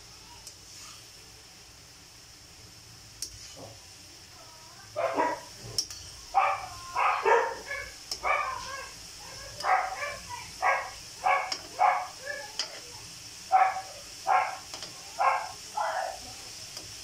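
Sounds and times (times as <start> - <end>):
metal tongs clicking on wok: 3.2 - 3.4, 5.8 - 6.2, 8.0 - 8.3, 11.5 - 11.7, 12.6 - 12.8, 14.6 - 15.0, 16.7 - 17.0
dog barking: 5.0 - 5.5, 6.3 - 12.5, 13.5 - 16.2.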